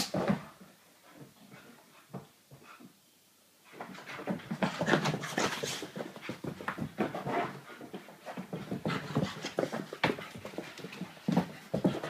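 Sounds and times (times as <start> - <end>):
puppy panting: 3.7 - 12.0
puppy scuffling: 3.7 - 12.0.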